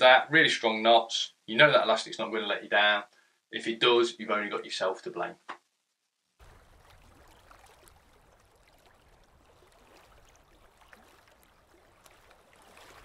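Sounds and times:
small splashes: 6.4 - 13.0
water lapping: 6.4 - 13.0.

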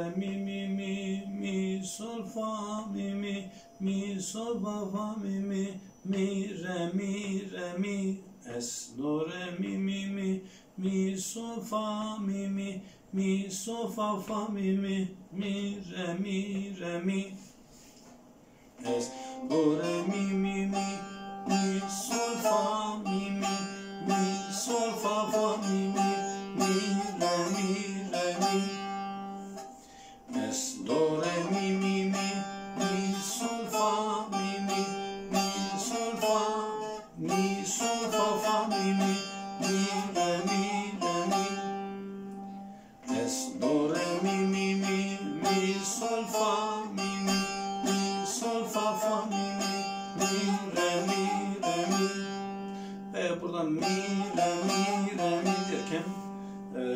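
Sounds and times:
plucked lute folk melody: 18.8 - 56.8.

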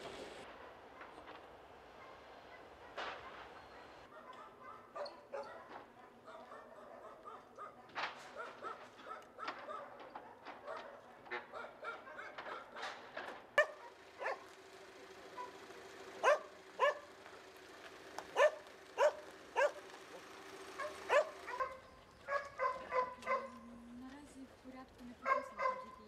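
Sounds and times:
dog barking: 0.5 - 14.5, 15.3 - 15.6, 16.2 - 17.1, 18.3 - 20.2, 20.8 - 23.8, 25.2 - 26.0
dog yipping: 2.0 - 12.8, 13.6 - 14.5, 16.2 - 17.1, 18.3 - 19.8, 20.8 - 23.8, 25.2 - 26.0.

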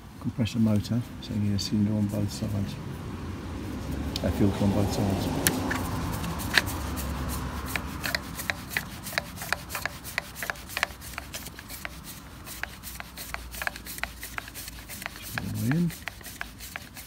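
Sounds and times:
plastic threads rubbing and clicking: 5.4 - 17.0.

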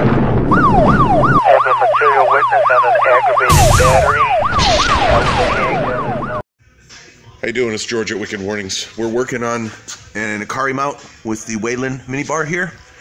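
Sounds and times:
emergency vehicle siren: 0.4 - 6.4
bursts of rushing noise: 3.4 - 6.4.

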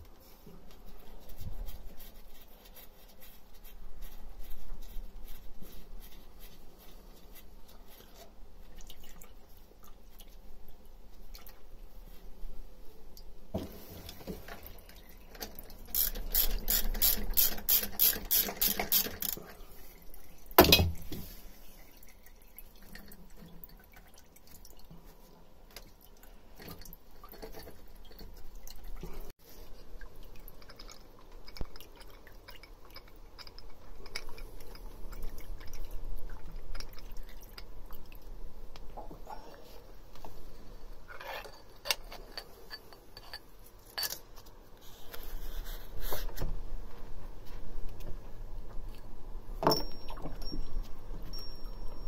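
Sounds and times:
ratchet spanner clicking: 15.9 - 19.4.

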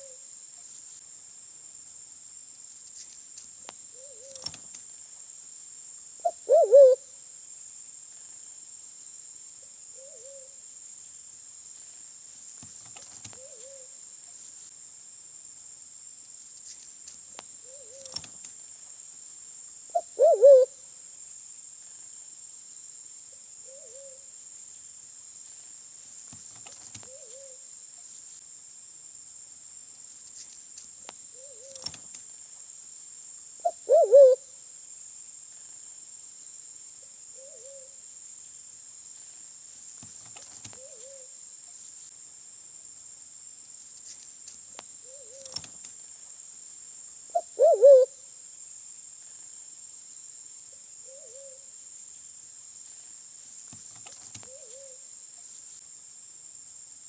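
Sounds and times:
pigeon low hooting calls: 6.2 - 7.0, 20.0 - 20.7, 33.6 - 34.4, 47.4 - 48.1.

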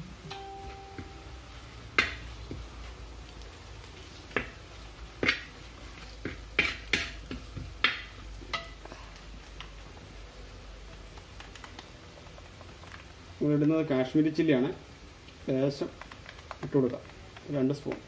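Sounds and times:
spoon scraping cooking pan: 3.9 - 8.8.

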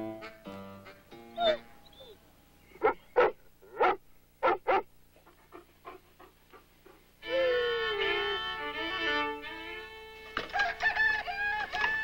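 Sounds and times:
dog yapping: 1.4 - 2.2
dog barking: 2.8 - 4.9
fiddle music: 7.2 - 10.9.

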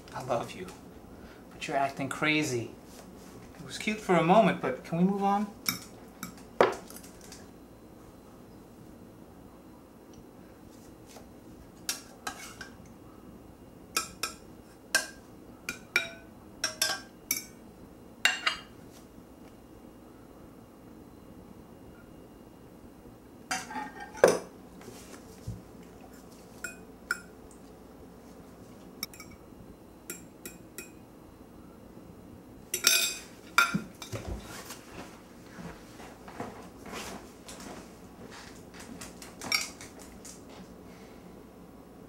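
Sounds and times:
cutlery clinking on plates: 32.8 - 34.2.

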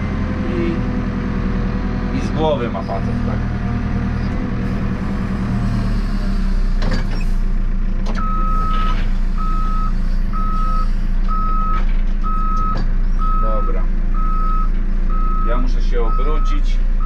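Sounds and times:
diesel engine running: 0.0 - 17.0
reversing alarm beeping: 8.2 - 16.5.

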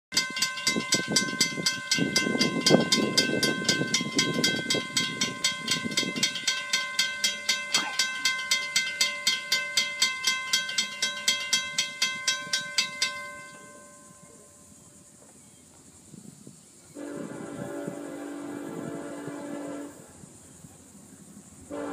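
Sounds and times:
crossing warning bell dinging: 0.1 - 14.8.

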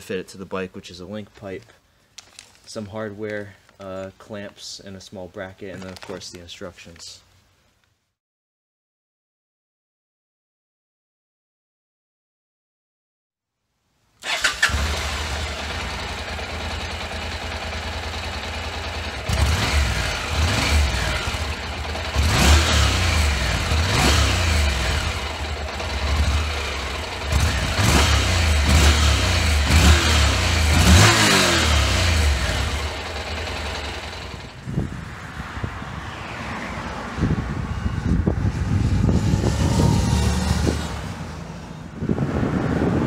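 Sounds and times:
motorcycle engine idling and revving: 14.2 - 43.0.

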